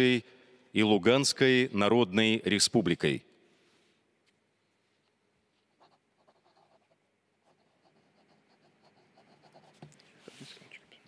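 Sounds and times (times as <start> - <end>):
pen scratching on paper: 5.7 - 10.4
soft rustling: 9.7 - 11.0.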